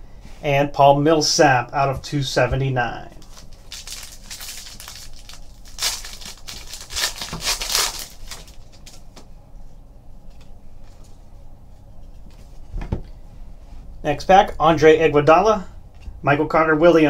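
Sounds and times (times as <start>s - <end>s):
foil wrapper crinkling and tearing: 3.2s - 9.1s
cards rustling: 3.2s - 9.2s.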